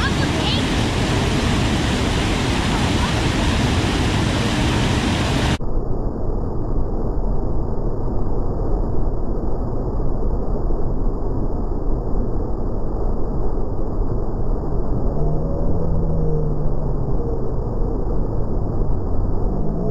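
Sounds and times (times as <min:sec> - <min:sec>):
waterfall rushing: 0:00.0 - 0:05.6.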